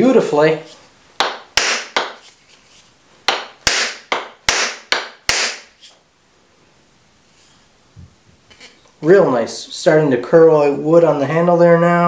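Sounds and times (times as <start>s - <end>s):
mallet knocking wooden handle: 1.2s - 2.2s, 3.3s - 5.7s.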